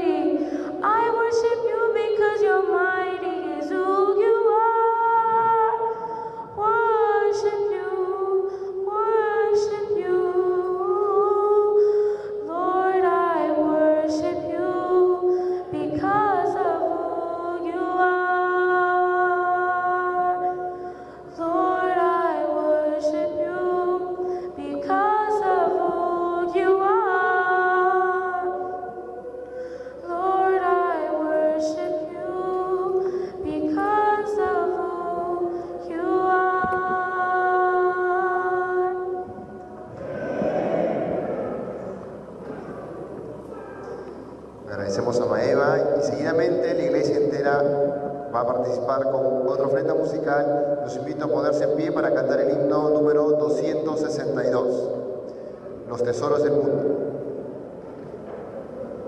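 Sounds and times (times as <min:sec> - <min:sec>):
child singing into a microphone: 0:00.0 - 0:39.5.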